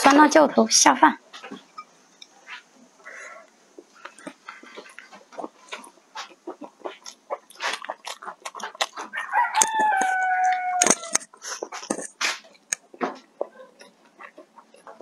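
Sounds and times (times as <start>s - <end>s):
chopsticks clicking and chewing: 3.4s - 15.0s
rooster crowing: 9.1s - 11.2s.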